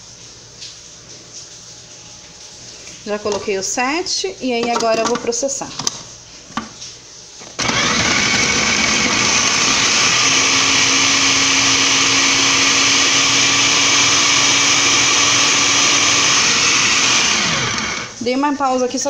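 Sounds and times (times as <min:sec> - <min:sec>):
food processor grinding meat: 0:07.6 - 0:18.2.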